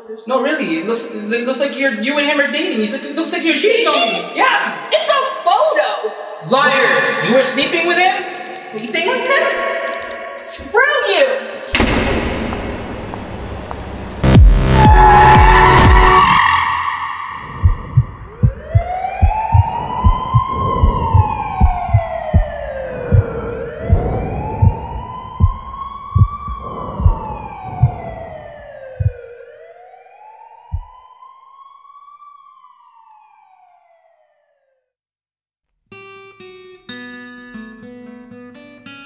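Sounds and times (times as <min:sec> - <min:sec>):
low thumps: 0:11.7 - 0:16.4, 0:17.5 - 0:28.2, 0:30.7 - 0:31.0
wailing siren: 0:13.7 - 0:34.9.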